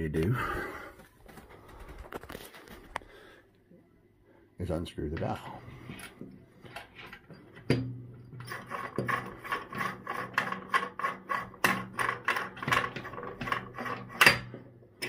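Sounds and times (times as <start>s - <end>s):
dial rasping on threads: 8.4s - 14.5s.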